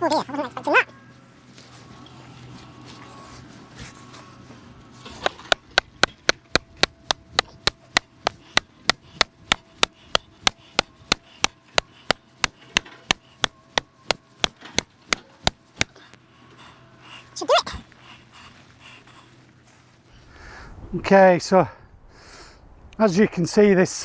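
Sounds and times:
hammer striking wooden post: 5.2s - 16.0s.

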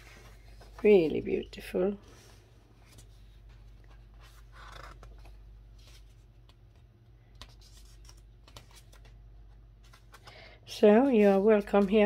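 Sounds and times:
magazine page rustling: 2.8s - 12.0s.

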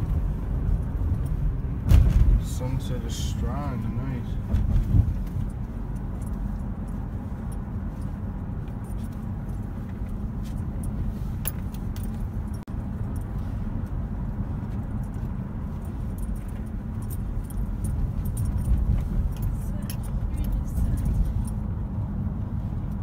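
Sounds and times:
car road and engine rumble: 0.0s - 23.0s
rattling and jingling clicks: 5.1s - 14.0s, 14.6s - 21.7s.

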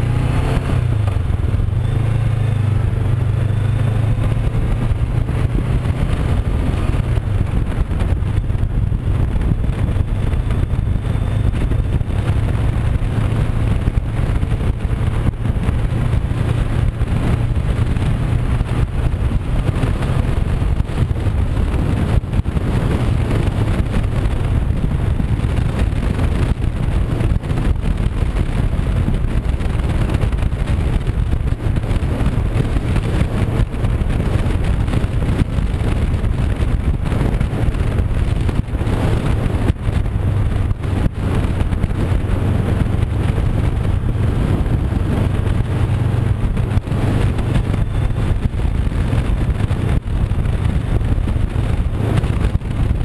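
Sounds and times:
motorcycle engine cruising: 0.0s - 53.0s
road noise: 0.0s - 53.0s
wind rushing over microphone: 0.0s - 53.0s.

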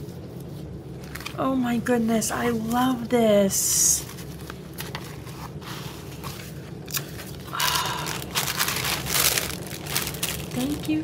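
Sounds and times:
packaging crinkling and rustling: 1.0s - 1.4s, 3.8s - 11.0s.

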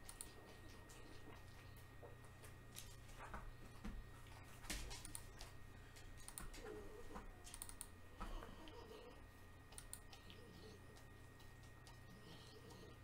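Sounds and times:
keyboard and mouse clicks: 0.0s - 0.4s, 6.2s - 6.8s, 7.4s - 7.9s, 9.7s - 12.0s
low steady hum: 0.0s - 13.0s.

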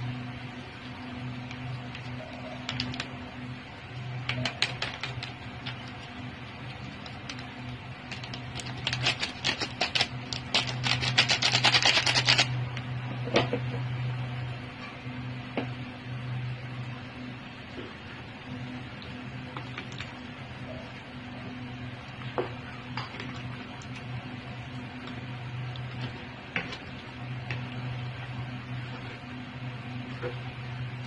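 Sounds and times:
low hum: 0.0s - 31.0s
plastic sachet crinkling: 8.1s - 12.5s.

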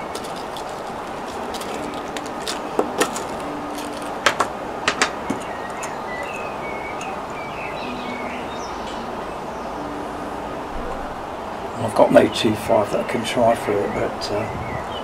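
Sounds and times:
metallic clicks and clinks: 0.0s - 7.4s.

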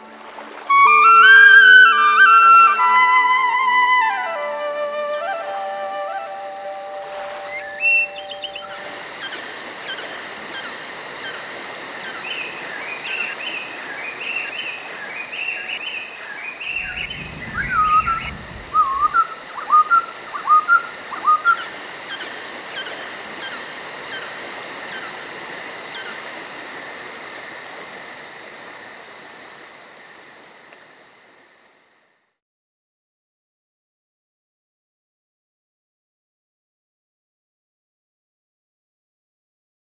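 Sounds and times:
insects trilling: 0.0s - 32.4s
bird calling: 0.7s - 11.4s, 15.2s - 24.3s.

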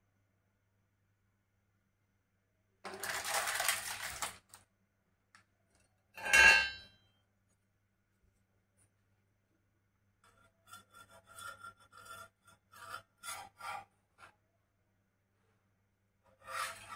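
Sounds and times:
paper wrapper rustling: 2.9s - 4.7s
utensil clattering on metal pan: 6.2s - 6.9s.

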